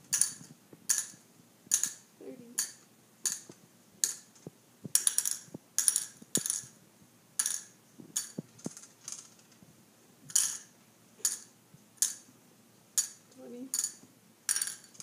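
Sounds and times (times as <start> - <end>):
candies clattering into plastic cups: 7.4 - 9.6, 13.0 - 15.0.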